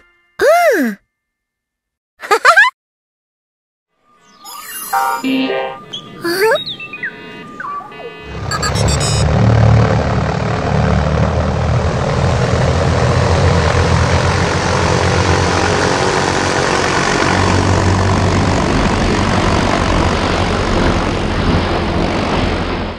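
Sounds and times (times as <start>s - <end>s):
engine droning: 6.9s - 22.2s.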